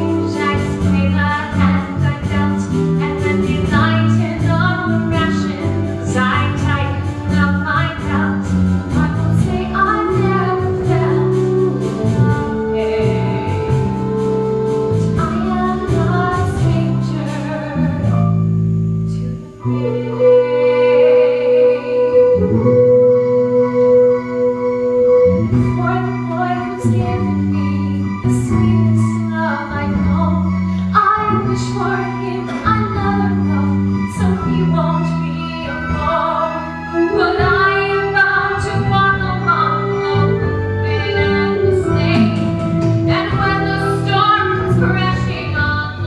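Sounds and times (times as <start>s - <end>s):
woman singing: 0.0s - 18.4s, 19.1s - 24.0s, 24.9s - 46.0s
instrumental accompaniment: 0.0s - 46.0s
small band holding low notes: 0.0s - 46.0s.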